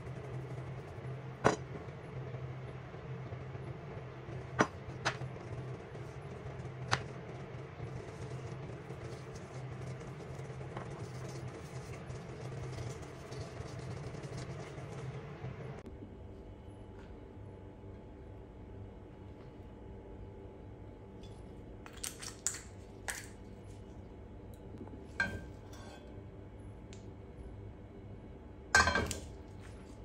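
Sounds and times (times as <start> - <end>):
low background hum: 0.0 - 30.0.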